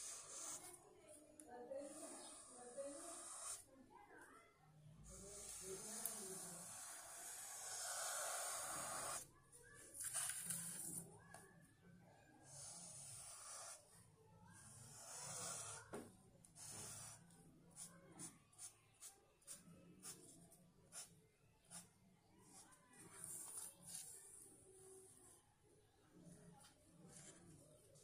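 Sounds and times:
marker pen scraping on paper: 0.0s - 0.7s, 1.8s - 3.6s, 5.1s - 9.2s, 10.0s - 11.0s, 12.5s - 13.9s, 14.6s - 16.0s, 16.6s - 20.3s, 20.9s - 21.9s.

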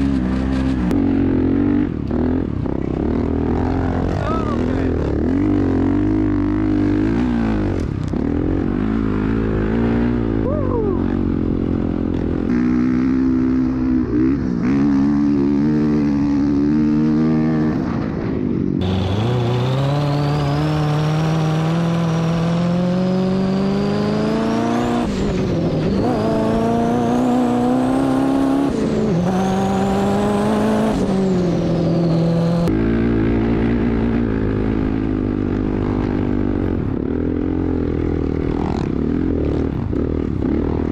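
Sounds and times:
dirt bike engine revving: 0.0s - 40.9s
sandrail engine revving with whine: 18.8s - 36.2s.

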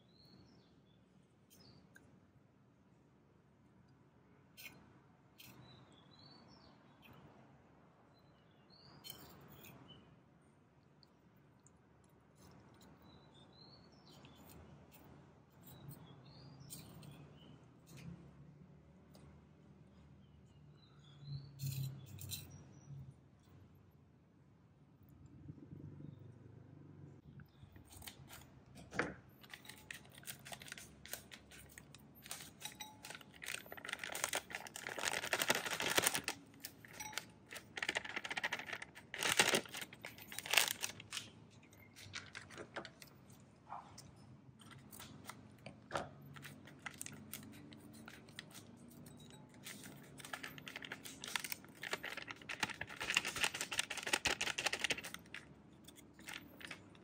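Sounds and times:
packets crinkling: 29.4s - 41.3s, 41.9s - 43.1s, 49.7s - 55.4s, 56.1s - 56.8s
scissors snipping plastic: 29.4s - 41.3s, 49.6s - 56.8s.

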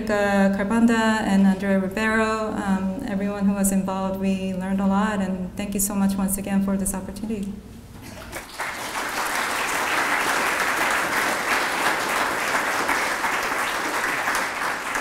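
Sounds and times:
audience applauding: 8.2s - 15.0s.

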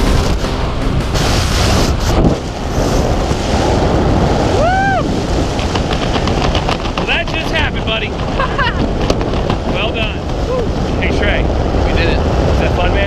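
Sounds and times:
wind rushing on microphone: 0.0s - 13.0s
person whooping: 4.5s - 5.2s, 10.4s - 10.8s.

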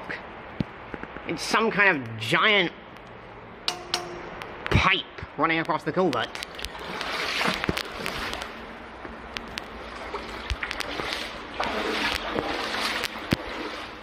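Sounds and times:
water sloshing while wading: 6.2s - 14.0s.

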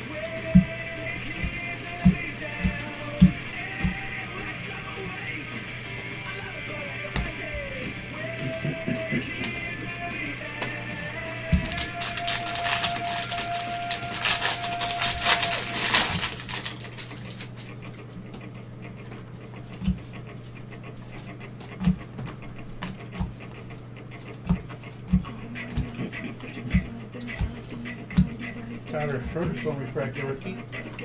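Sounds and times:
steady low hum: 0.0s - 31.0s
foil wrapper crinkling and tearing: 11.6s - 17.6s.

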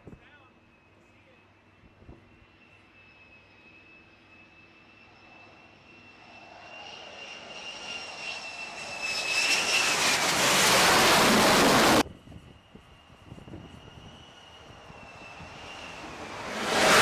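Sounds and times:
jet engine whine: 0.0s - 17.0s
rushing jet noise: 5.3s - 12.4s, 13.2s - 17.0s.

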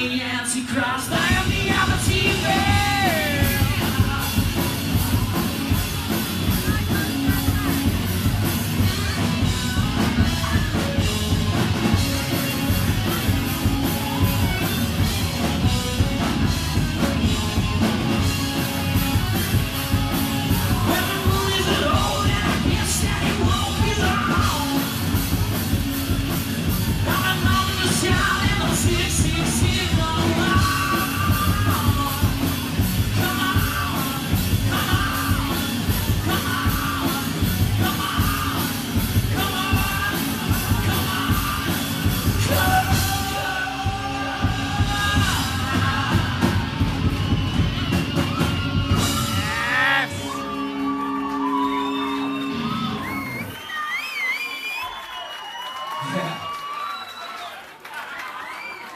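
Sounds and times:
person singing: 0.0s - 7.9s, 19.1s - 25.2s, 27.0s - 47.0s, 48.9s - 53.2s
bass guitar: 0.0s - 53.7s
drums: 0.0s - 58.9s
electric guitar: 0.8s - 53.6s.

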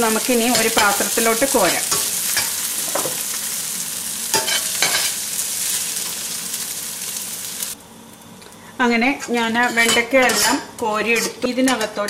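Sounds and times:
okra sizzling in hot oil: 0.0s - 8.8s.

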